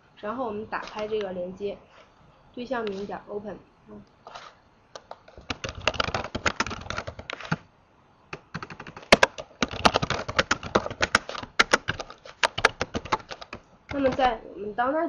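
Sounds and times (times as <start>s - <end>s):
fast typing on keyboard: 5.0s - 7.6s, 8.3s - 14.4s.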